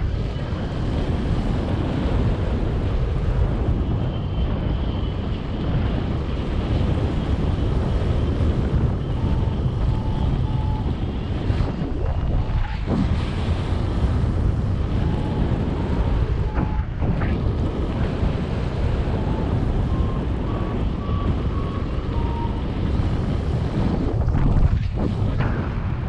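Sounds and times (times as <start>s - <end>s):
wind buffeting microphone: 0.0s - 26.0s
variometer beeps: 9.0s - 11.7s, 19.0s - 23.8s.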